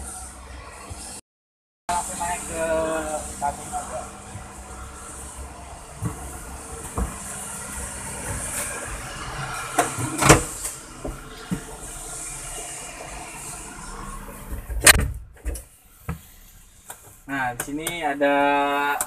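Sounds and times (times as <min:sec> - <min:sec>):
steady background noise: 0:01.9 - 0:19.0.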